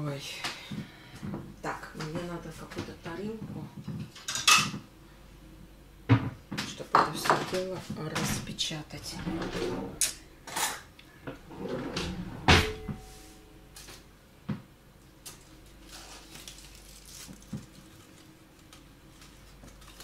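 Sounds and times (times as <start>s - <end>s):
aluminium foil rustling: 15.2s - 20.0s.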